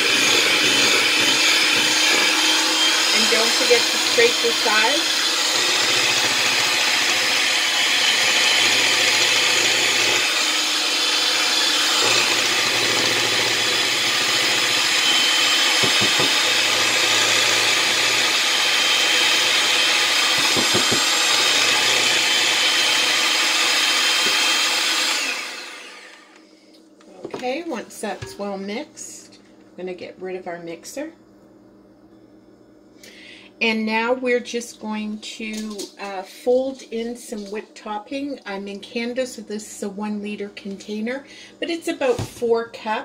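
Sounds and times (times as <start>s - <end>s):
electric hand mixer whirring: 0.0s - 26.4s.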